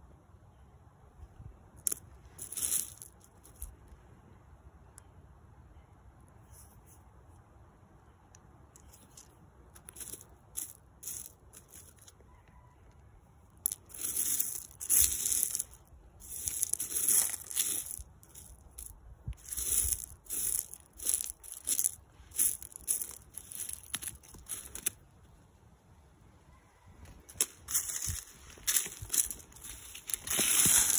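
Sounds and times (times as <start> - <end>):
fingers scraping loose gravel: 1.8 - 3.7, 8.8 - 12.2, 13.6 - 25.0, 27.2 - 30.9.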